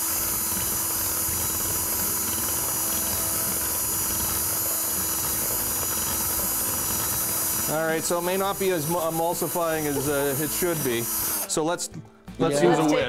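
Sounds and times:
cordless drill whirring: 0.0 - 11.5.

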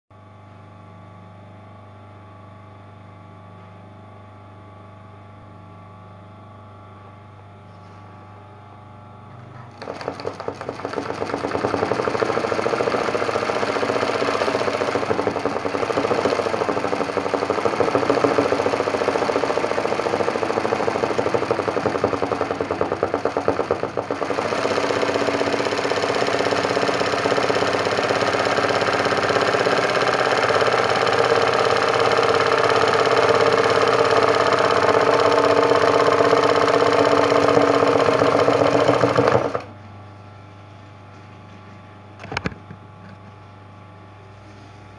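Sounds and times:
sewing machine stitching: 9.7 - 39.7.

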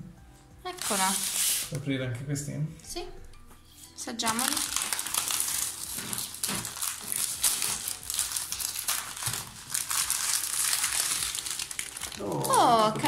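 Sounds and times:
plastic wrapper crinkling: 0.7 - 1.8, 4.2 - 13.0.

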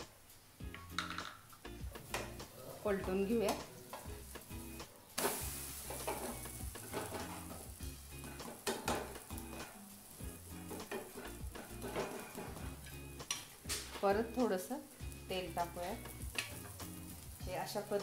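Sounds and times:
dosa sizzling in oil: 0.0 - 18.0
spatula scraping pan: 10.6 - 13.9.

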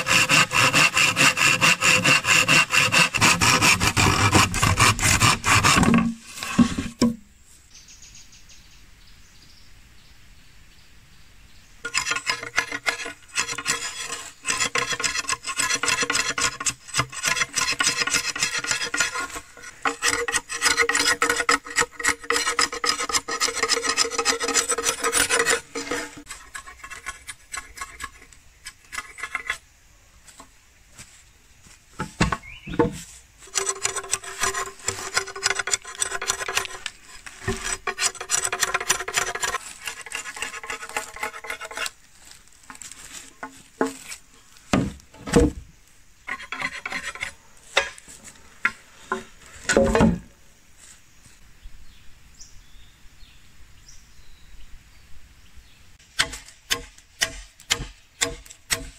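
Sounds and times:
blade scraping bamboo: 0.0 - 7.2, 11.8 - 29.6, 32.0 - 45.6, 46.3 - 50.2, 56.2 - 58.9.

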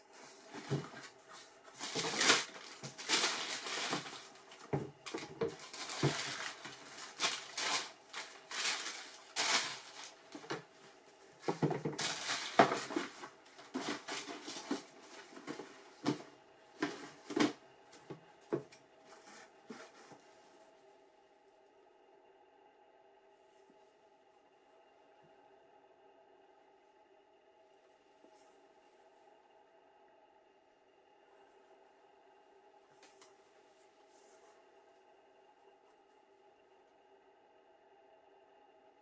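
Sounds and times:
tissue paper rustling: 0.0 - 17.6, 19.1 - 20.7.

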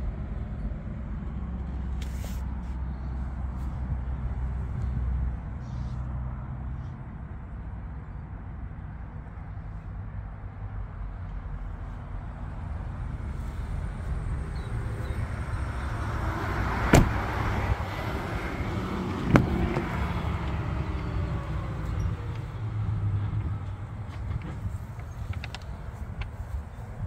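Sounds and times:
steady low rumble: 0.0 - 27.0
car door clunk: 16.8 - 17.4, 19.2 - 20.1.

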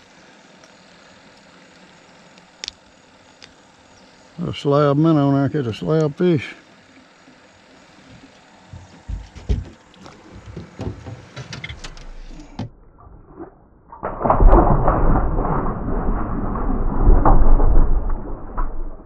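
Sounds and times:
water splashing and sloshing: 8.0 - 19.0
light knocks and rattles: 8.1 - 12.7.

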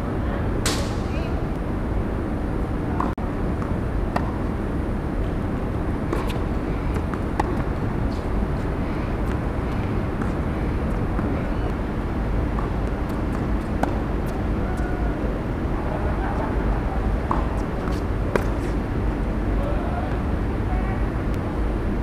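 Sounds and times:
low background rumble: 0.0 - 22.0
tennis balls struck by rackets: 2.9 - 4.6, 6.0 - 8.4, 9.2 - 14.9, 17.2 - 18.8
balls bouncing on hard court: 6.0 - 8.3, 12.5 - 14.9.

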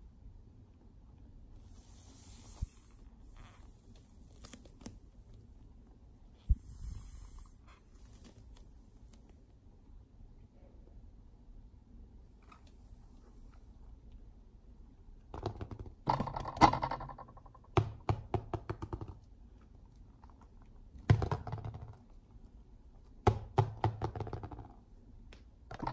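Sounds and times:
foam balls knocking on tabletop: 15.3 - 19.2, 21.1 - 22.1, 23.2 - 24.8.

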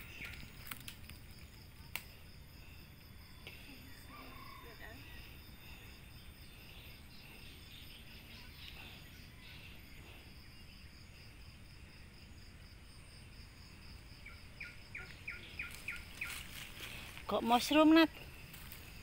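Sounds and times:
insects trilling: 0.0 - 19.0
faint bird chirps: 2.6 - 12.4, 14.2 - 18.8.

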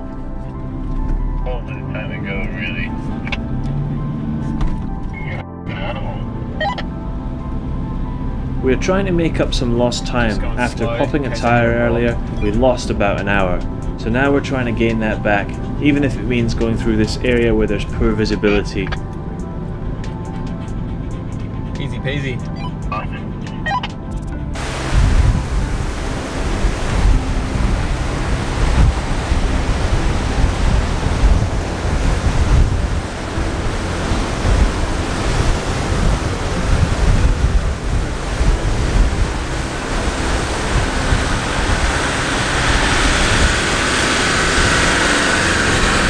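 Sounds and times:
rushing water: 8.5 - 18.7, 24.6 - 46.0
wind buffeting microphone: 24.6 - 46.0.

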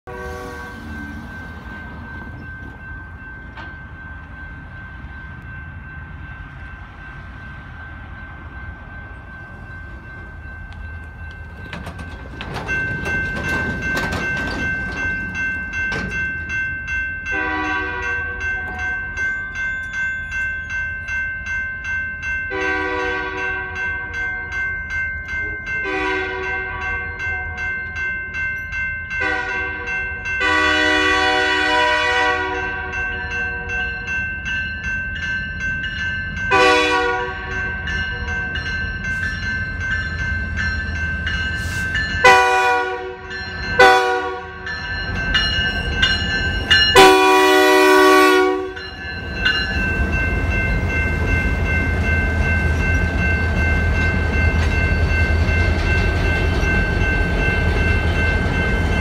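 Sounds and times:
locomotive horn blasts: 0.0 - 1.2, 17.3 - 19.0, 22.5 - 24.5, 25.8 - 27.8, 29.2 - 34.1, 36.5 - 38.5, 42.2 - 44.7, 46.9 - 48.8
railroad crossing bell dinging: 0.1 - 59.0.

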